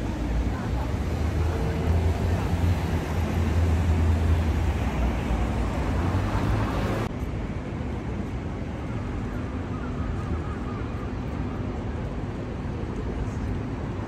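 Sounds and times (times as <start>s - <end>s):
city street traffic: 0.0s - 14.0s.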